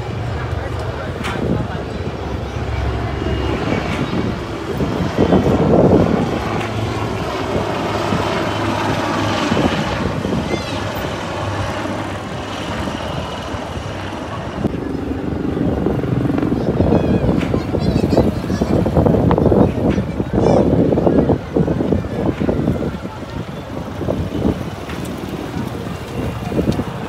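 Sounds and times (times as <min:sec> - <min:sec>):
helicopter rotors droning: 0:00.0 - 0:27.0.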